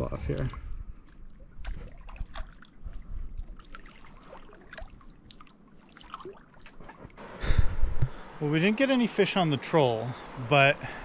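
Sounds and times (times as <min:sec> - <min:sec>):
small splashes and drips: 0:00.4 - 0:07.2
water lapping against raft: 0:00.4 - 0:08.2.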